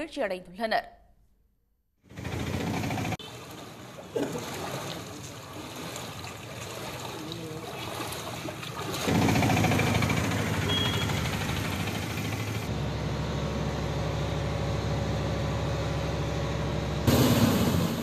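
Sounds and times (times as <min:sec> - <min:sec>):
auto-rickshaw engine: 0:02.0 - 0:03.3, 0:09.0 - 0:17.8
water trickling: 0:03.2 - 0:09.8.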